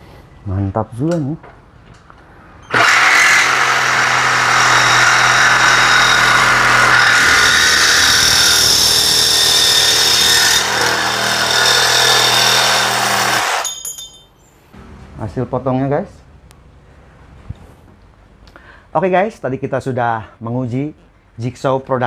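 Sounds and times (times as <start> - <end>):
jigsaw cutting metal tube: 2.7 - 13.7.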